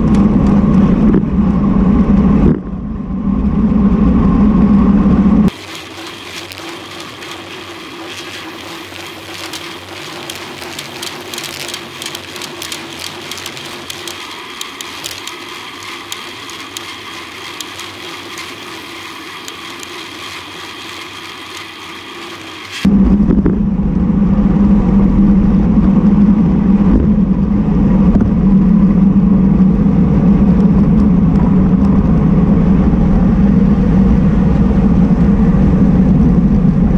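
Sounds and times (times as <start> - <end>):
road and wind noise: 0.0 - 36.9
bike clicks and rattles: 5.5 - 22.8.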